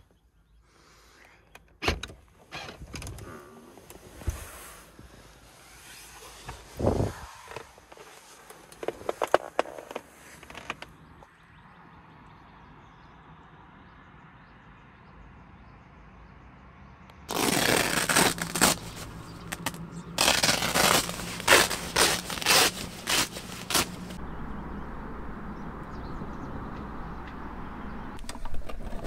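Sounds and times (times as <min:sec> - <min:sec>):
loud scraping and rustling: 0:03.8 - 0:10.9, 0:17.3 - 0:24.2.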